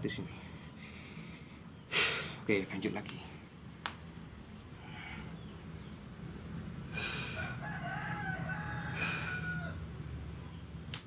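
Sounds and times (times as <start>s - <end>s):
steady low hum: 0.0s - 11.0s
rooster crowing: 7.2s - 10.1s.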